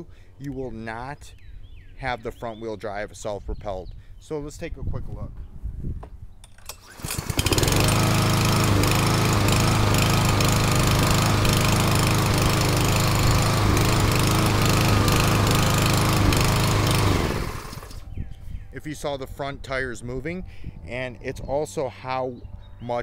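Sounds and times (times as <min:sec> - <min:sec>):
lawn mower engine running: 0:06.5 - 0:18.2.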